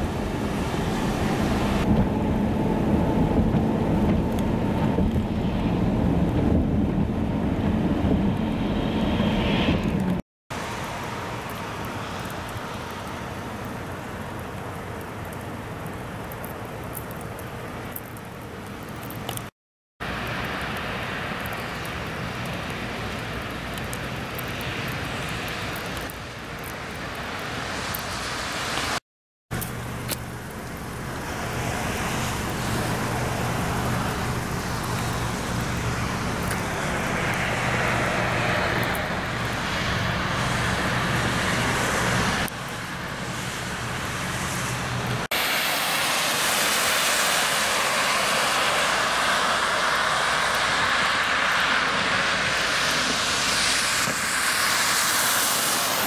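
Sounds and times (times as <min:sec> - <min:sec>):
traffic on wet road: 0:00.0 - 0:56.0.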